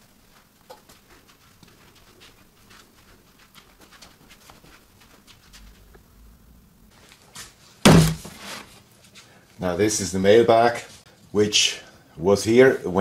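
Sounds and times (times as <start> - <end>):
faint clicks and rustles: 0.0 - 7.6.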